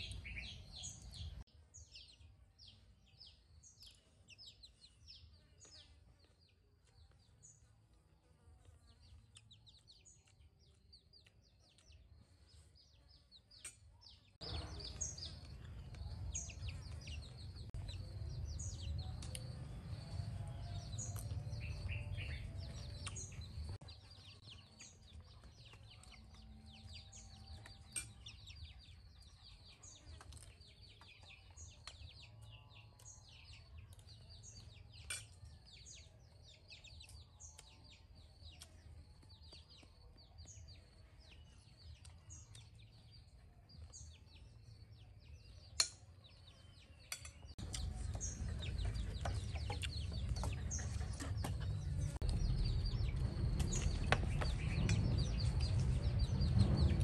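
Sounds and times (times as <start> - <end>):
small birds chirping: 0.0 - 57.0
low rumble: 47.6 - 57.0.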